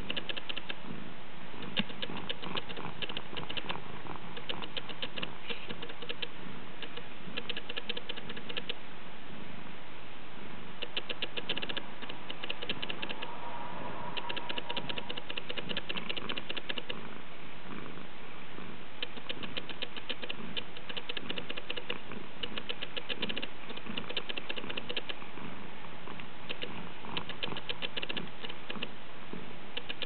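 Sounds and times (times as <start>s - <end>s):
autofocus motor ticking: 0.0s - 0.8s, 1.6s - 8.8s, 10.8s - 17.0s, 19.0s - 25.2s, 29.7s - 30.0s.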